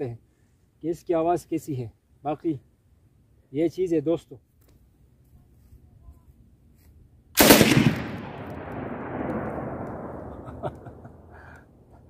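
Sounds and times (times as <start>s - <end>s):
machine gun burst: 7.4s - 8.4s
gunshot echo: 7.4s - 11.4s.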